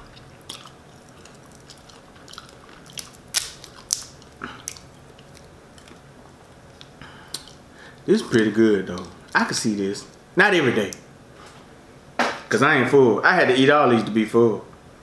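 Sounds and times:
shells cracking and snapping: 0.4 - 7.6.

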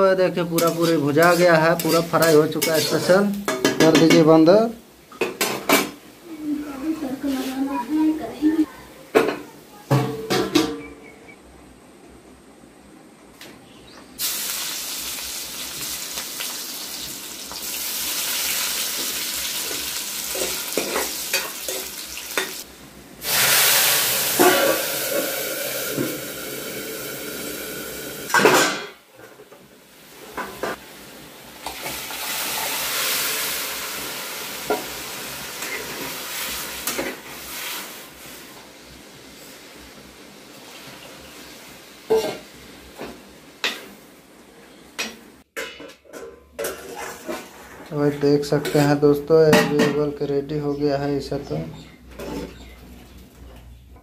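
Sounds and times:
food sizzling in hot oil: 0.0 - 4.0, 14.2 - 28.4, 30.1 - 43.9.

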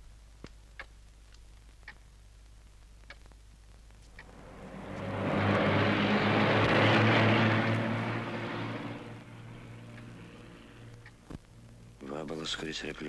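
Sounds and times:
low engine drone: 4.1 - 12.1.

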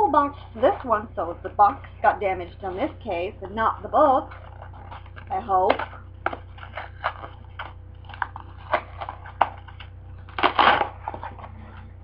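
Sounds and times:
cardboard box crackling and snapping: 4.6 - 11.5.

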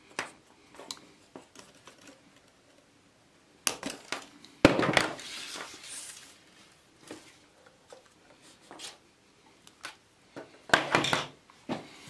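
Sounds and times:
soft rustle: 5.2 - 9.0.

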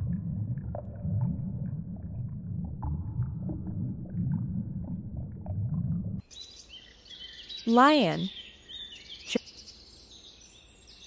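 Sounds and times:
muffled underwater rumble: 0.0 - 6.2
faint bird chirps: 6.3 - 11.0.

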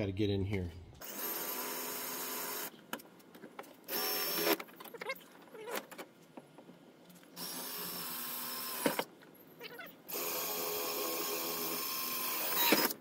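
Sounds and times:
cordless drill whining: 1.0 - 2.7, 3.9 - 4.6, 7.4 - 9.0, 10.1 - 13.0.

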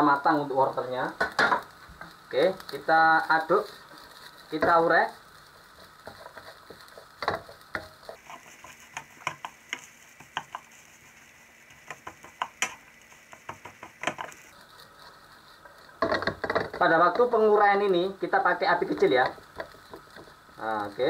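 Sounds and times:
faint frying sizzle: 0.0 - 21.0
spatula scraping and tapping wok: 3.8 - 17.5, 18.8 - 20.6.

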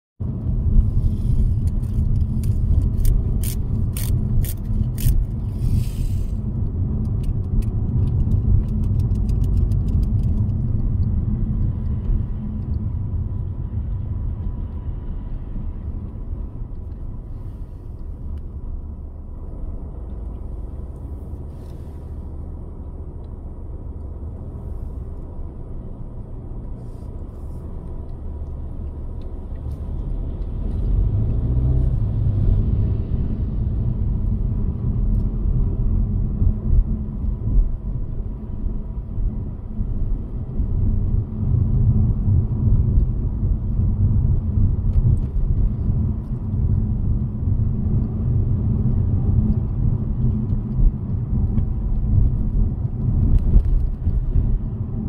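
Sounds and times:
car rumble on road: 0.2 - 55.0.

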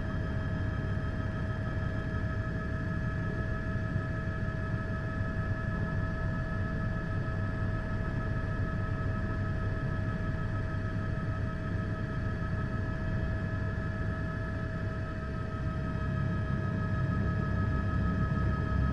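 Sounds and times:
helicopter cabin rumble and whine: 0.0 - 18.9.

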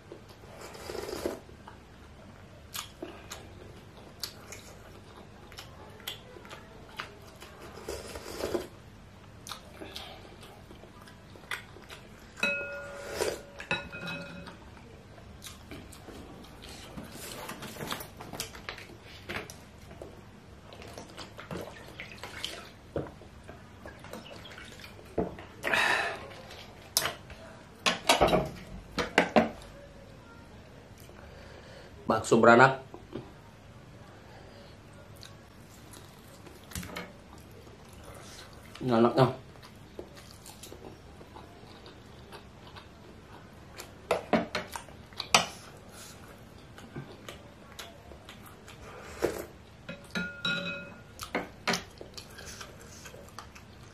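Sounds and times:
chewing and wet mouth sounds: 2.7 - 12.4, 15.2 - 23.2, 23.8 - 27.5, 35.0 - 38.8, 39.5 - 49.8, 51.1 - 53.9
spoon clinking on plate: 12.4 - 14.6, 49.9 - 51.0.

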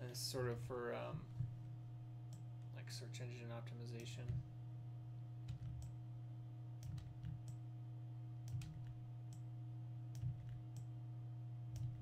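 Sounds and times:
steady low hum: 0.0 - 12.0
keyboard keys clicking: 6.8 - 7.6, 8.5 - 9.4.

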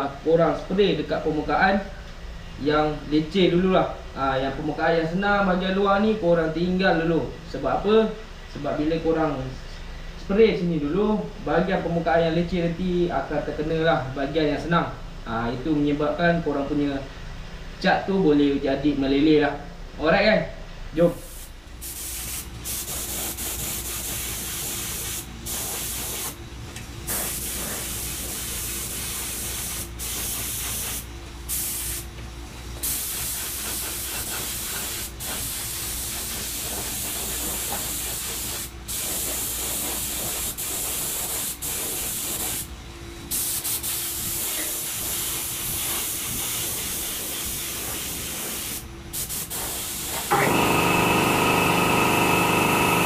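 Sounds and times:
steady multi-tone hum: 0.0 - 53.0
spray gun hissing: 21.2 - 26.4, 27.1 - 32.1, 32.8 - 42.7, 43.3 - 53.0.

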